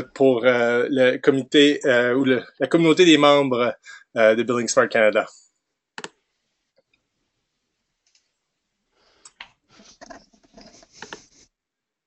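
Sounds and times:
clicks and rustling near microphone: 0:09.3 - 0:11.4.

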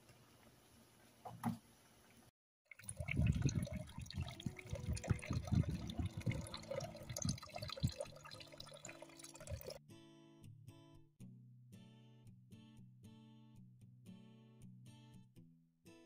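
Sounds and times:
fish splashing in bucket: 0:02.7 - 0:09.8.

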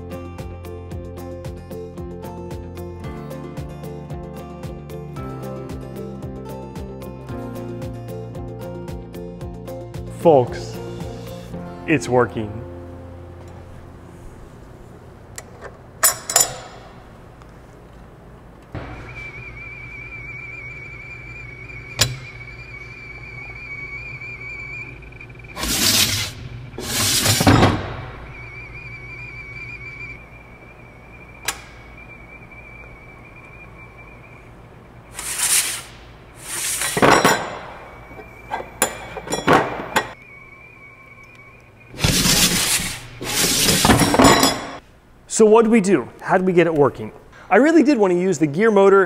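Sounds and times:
servo motor high whine: 0:18.8 - 0:30.2.

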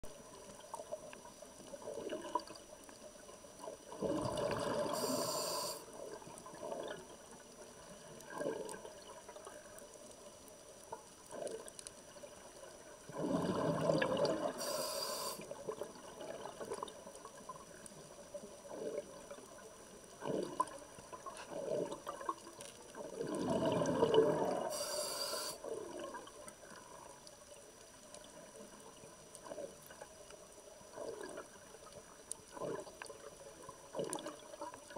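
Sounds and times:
exhaled bubbles rushing: 0:03.9 - 0:05.2, 0:13.1 - 0:14.6, 0:23.1 - 0:24.7
diver breathing through regulator: 0:04.6 - 0:05.9, 0:14.5 - 0:15.4, 0:24.4 - 0:25.6.

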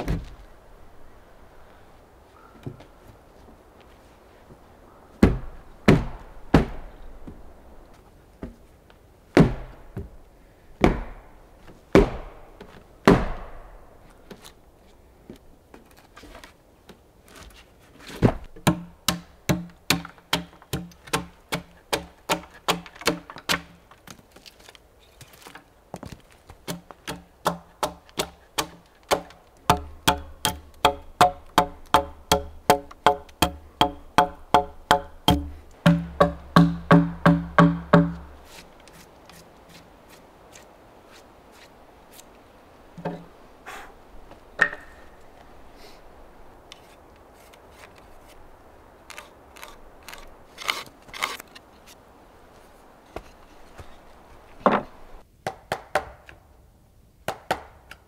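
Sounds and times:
axe chopping timber: 0:05.2 - 0:06.9, 0:09.3 - 0:10.1, 0:10.8 - 0:11.3, 0:11.9 - 0:13.8, 0:18.2 - 0:23.8, 0:26.6 - 0:38.3, 0:44.6 - 0:45.0, 0:54.6 - 0:56.4, 0:57.3 - 0:58.0.

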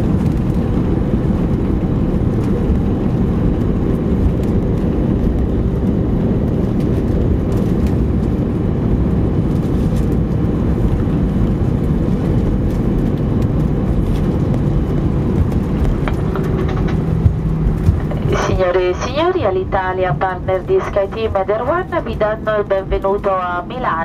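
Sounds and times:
aircraft cabin rumble: 0:00.0 - 0:24.0
faint steady hum: 0:16.1 - 0:24.0.

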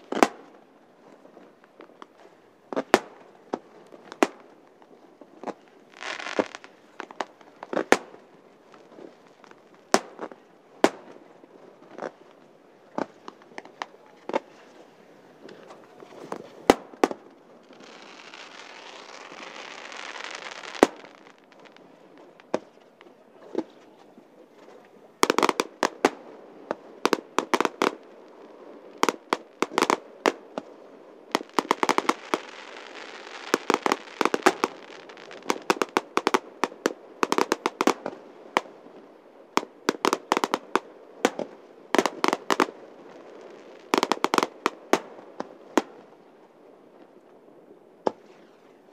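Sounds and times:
firework crackles: 0:00.0 - 0:48.9
firework bangs: 0:15.5 - 0:22.7, 0:31.3 - 0:38.8, 0:39.6 - 0:46.0
firework hiss: 0:15.7 - 0:21.8, 0:31.3 - 0:38.2.

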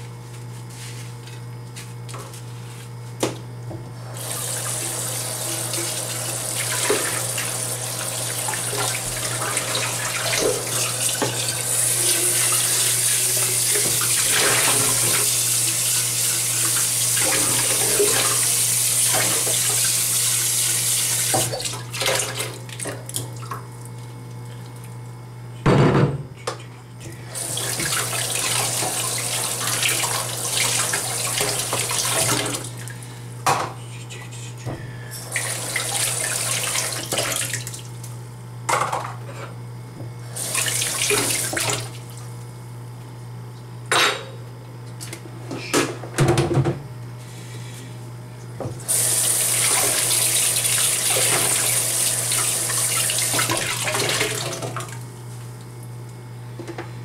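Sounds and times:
kitchen faucet running: 0:04.0 - 0:22.5, 0:27.2 - 0:32.9, 0:35.2 - 0:38.0, 0:40.2 - 0:42.1, 0:48.8 - 0:54.9
steady low hum: 0:32.5 - 0:35.3.

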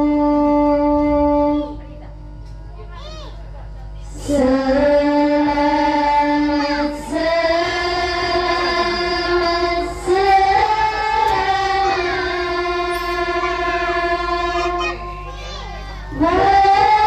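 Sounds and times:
woman singing devotional song: 0:00.0 - 0:02.1, 0:04.1 - 0:14.9, 0:16.0 - 0:17.0.

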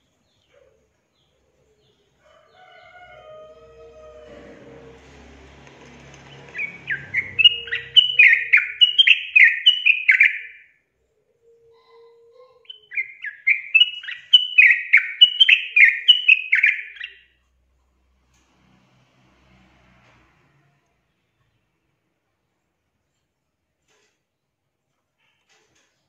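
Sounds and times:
bird singing bubbly notes: 0:06.5 - 0:10.6.

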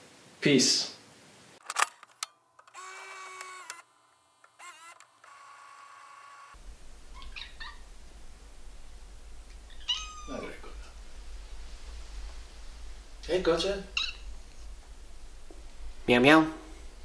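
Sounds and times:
low steady hum: 0:06.6 - 0:17.0
cat meowing: 0:09.7 - 0:11.0, 0:13.9 - 0:14.3.

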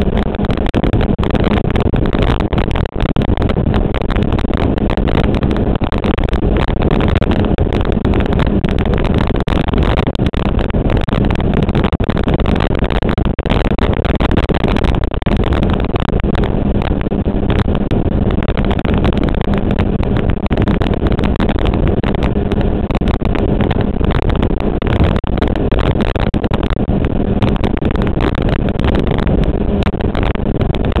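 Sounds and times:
motorcycle engine drone: 0:00.0 - 0:31.0
wind buffeting microphone: 0:00.0 - 0:31.0.

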